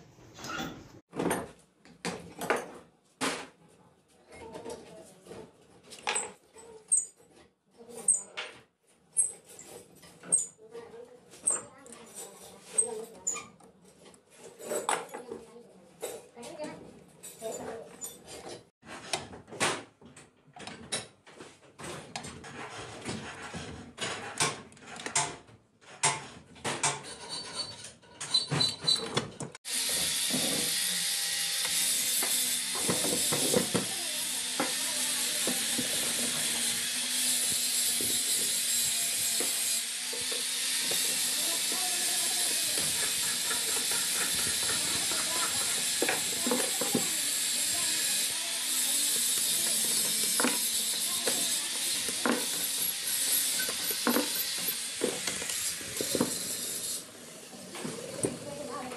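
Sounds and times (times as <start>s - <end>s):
faint clicks and scrapes: 3.6s - 19.3s, 20.1s - 29.6s
hand tools tapping on metal: 37.3s - 48.0s, 49.0s - 56.6s.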